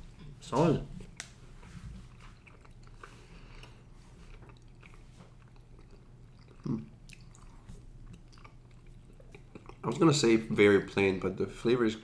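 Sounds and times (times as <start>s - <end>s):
low steady hum: 0.0s - 12.0s
chewing chocolate: 2.1s - 10.0s.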